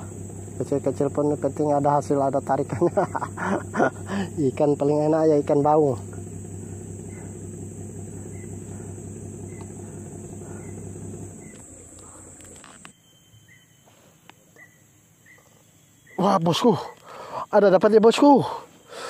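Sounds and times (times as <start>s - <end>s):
high steady drone: 0.0s - 12.9s
low hum with overtones: 0.0s - 12.9s.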